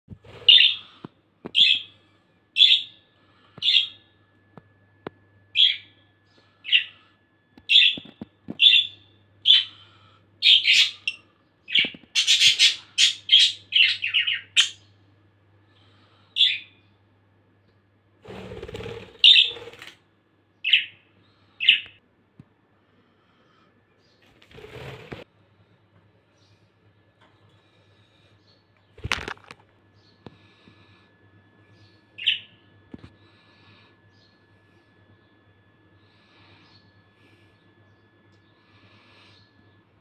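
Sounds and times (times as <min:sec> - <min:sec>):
budgerigars chirping: 0:10.4 - 0:14.8.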